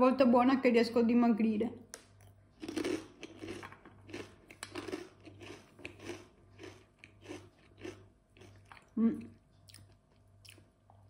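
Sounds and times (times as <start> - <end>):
crunchy chewing of snack: 2.2 - 11.0.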